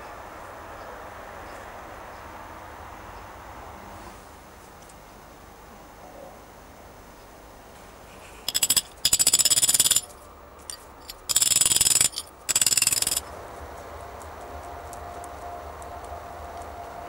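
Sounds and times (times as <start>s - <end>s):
rapid metallic tapping: 8.5s - 13.3s.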